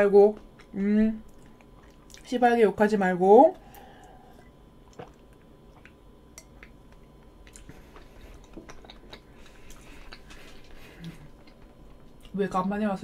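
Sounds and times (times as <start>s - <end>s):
drinking and swallowing: 3.7s - 12.3s.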